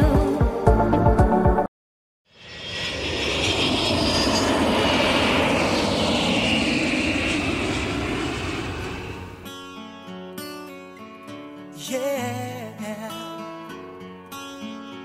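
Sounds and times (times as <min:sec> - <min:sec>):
jet airliner passing overhead: 0:02.3 - 0:09.6
jet engine whine: 0:02.3 - 0:09.6.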